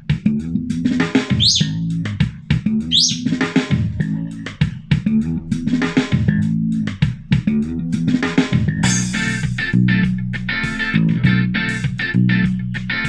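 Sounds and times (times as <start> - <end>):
bass guitar: 0.0 - 13.0
drum kit steady beat: 0.1 - 12.5
plucked guitar: 8.8 - 13.0.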